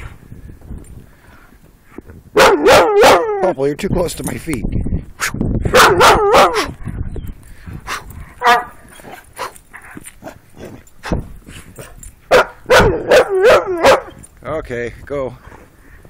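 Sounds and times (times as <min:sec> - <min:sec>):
dog barking and yipping: 0:02.4 - 0:03.6, 0:05.7 - 0:06.8, 0:07.9 - 0:11.2, 0:11.8 - 0:14.2.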